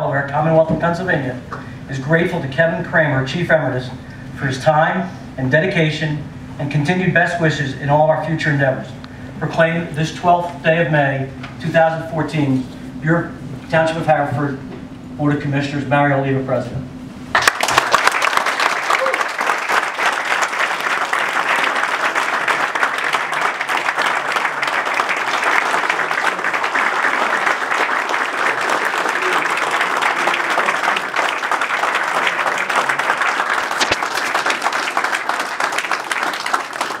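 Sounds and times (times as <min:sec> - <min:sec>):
people applauding: 0:17.3 - 0:37.0.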